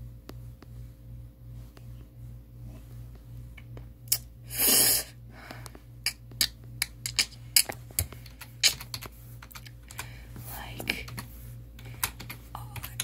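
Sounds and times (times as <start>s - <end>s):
steady low hum: 0.0s - 13.0s
keyboard keys clicking: 8.0s - 10.1s, 10.9s - 13.0s.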